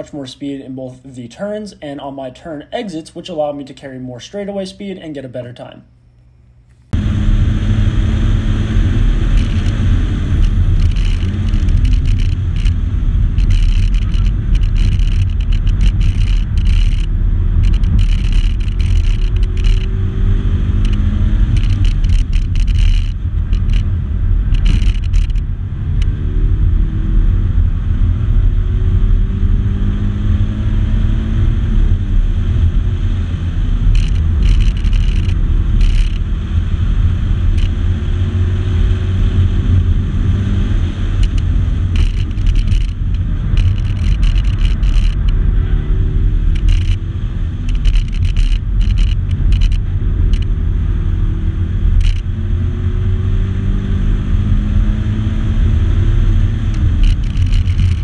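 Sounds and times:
car engine and road drone: 6.9 - 58.0.

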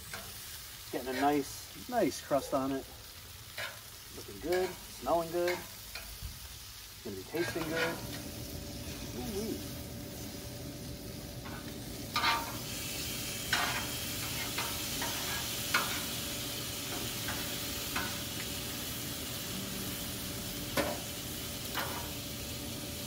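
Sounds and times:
food sizzling on a griddle: 0.0 - 23.0
metal spatula scraping griddle: 3.5 - 3.8, 7.2 - 9.2, 11.4 - 16.2, 16.8 - 18.2, 21.6 - 22.2.

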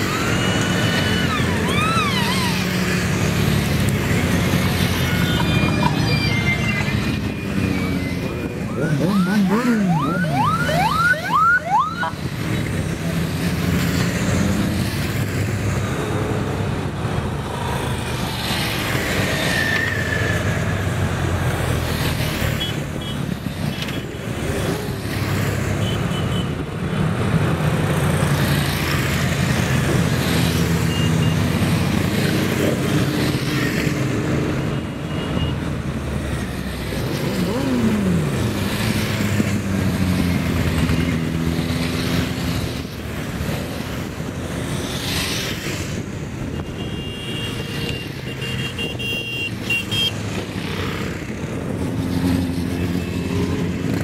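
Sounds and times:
vehicle engines running: 0.0 - 23.7.

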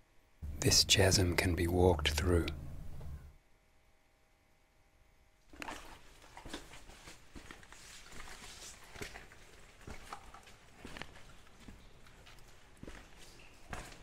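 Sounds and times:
footsteps on loose stones: 5.6 - 14.0.

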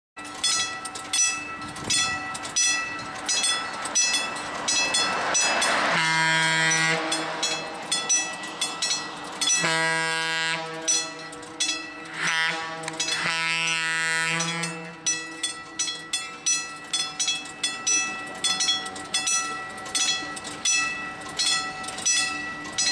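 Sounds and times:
bell ringing: 0.2 - 22.9
locomotive air horn blasts: 5.8 - 7.9, 9.5 - 11.4, 12.1 - 15.1.

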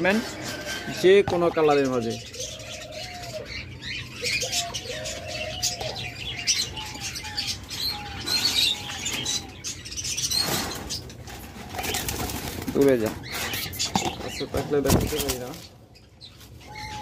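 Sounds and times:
doves cooing: 0.0 - 15.6, 16.6 - 17.0
small birds chirping: 0.0 - 17.0
wings flapping against cage: 10.4 - 15.6.

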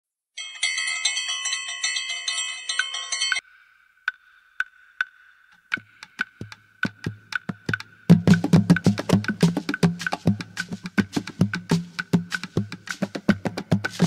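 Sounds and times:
bright chiming bells: 0.4 - 3.9
wood-block clicks: 4.0 - 14.0.

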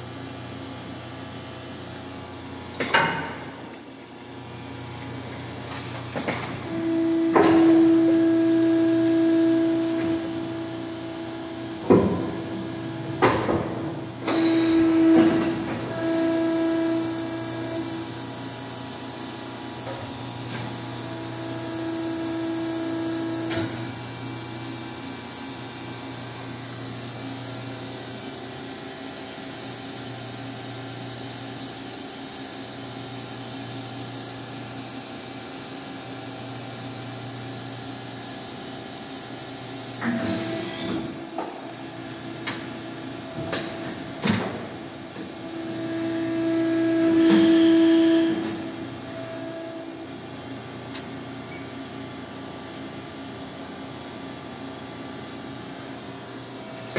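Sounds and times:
injection molding machine humming: 2.8 - 35.6.

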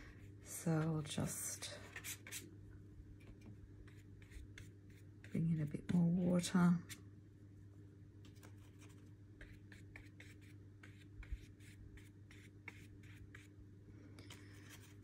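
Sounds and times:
low steady hum: 0.0 - 15.0
paint brush strokes on paper: 1.8 - 2.5, 3.8 - 7.0, 8.6 - 13.5.

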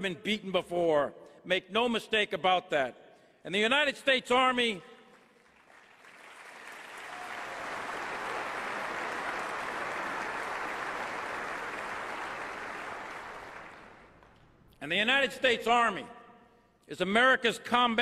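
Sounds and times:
large audience applauding: 5.4 - 14.4.

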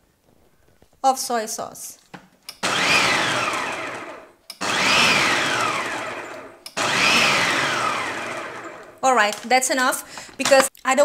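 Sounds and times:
food processor motor whine: 2.6 - 9.4.

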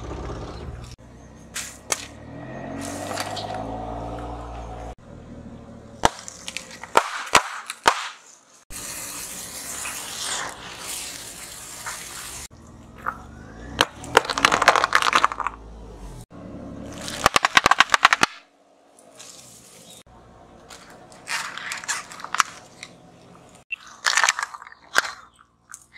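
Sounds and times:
firework fountain hissing: 8.7 - 12.5
brittle plastic cracking: 20.7 - 22.9, 23.8 - 25.9.

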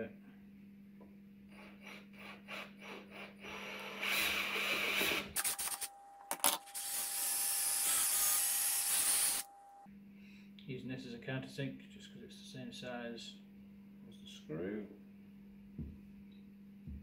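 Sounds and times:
drill boring through wood: 1.5 - 5.8, 6.6 - 9.5.

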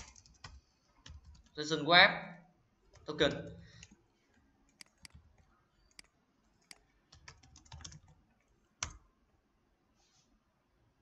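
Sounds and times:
computer keyboard typing: 0.0 - 1.6, 2.9 - 4.0, 4.7 - 9.0.

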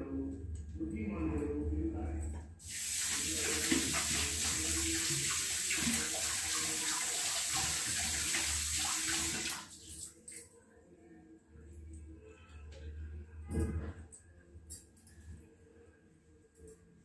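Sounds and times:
tap water splashing into sink: 2.6 - 10.1.

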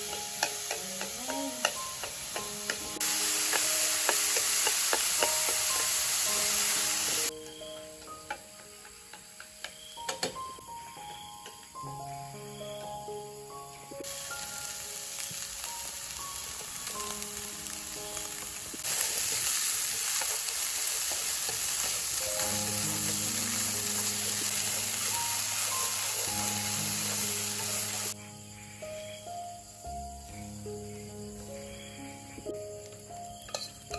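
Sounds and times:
food sizzling in oil: 0.0 - 9.8, 14.0 - 28.2.

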